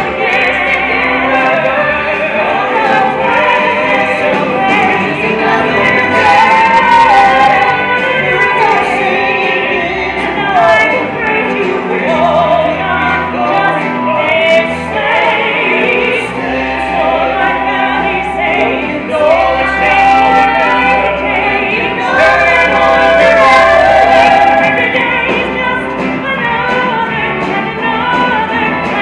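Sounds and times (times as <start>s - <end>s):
cast singing in harmony: 0.0s - 27.2s
band accompaniment: 0.0s - 29.0s.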